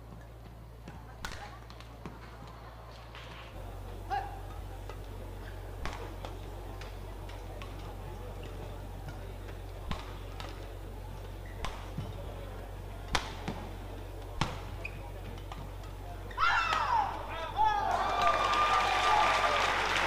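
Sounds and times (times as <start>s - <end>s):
crowd murmur: 0.0s - 20.0s
badminton racket hits: 11.4s - 12.2s, 13.0s - 16.9s.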